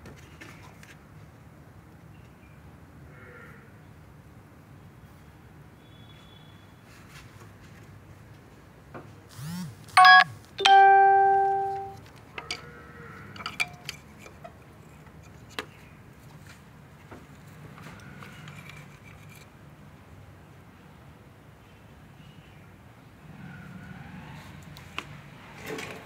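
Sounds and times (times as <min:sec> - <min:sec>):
two-note ding-dong chime: 0:10.0 - 0:12.0.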